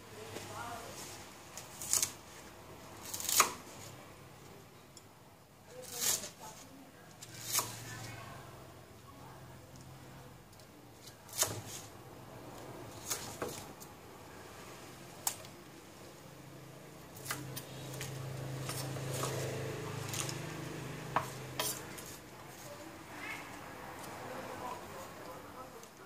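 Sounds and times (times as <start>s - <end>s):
soft rustling of onions: 0.0s - 4.7s, 5.6s - 9.0s
knife chopping on wooden board: 21.1s - 22.1s.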